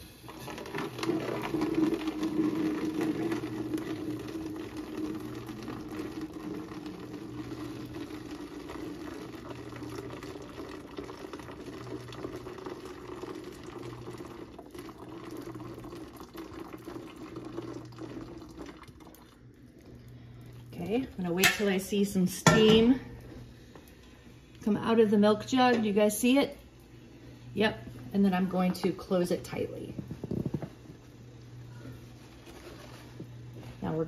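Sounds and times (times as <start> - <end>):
water pouring into plastic jug: 0.0 - 20.8.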